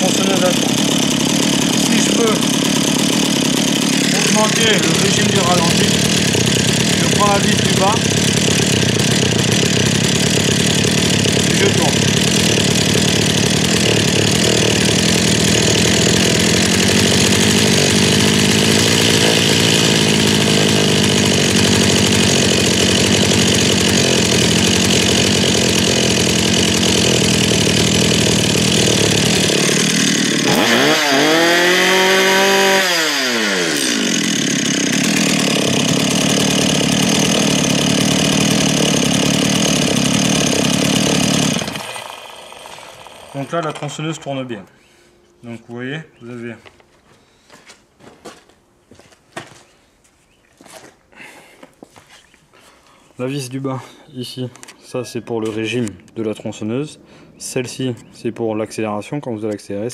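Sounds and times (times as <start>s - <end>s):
chainsaw engine idling and revving: 0.0s - 44.6s.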